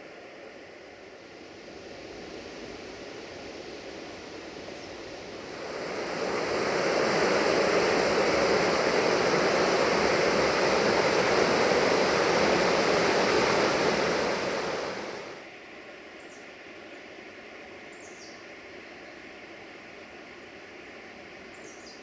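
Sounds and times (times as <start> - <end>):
river rapids rushing: 5.4 - 15.4.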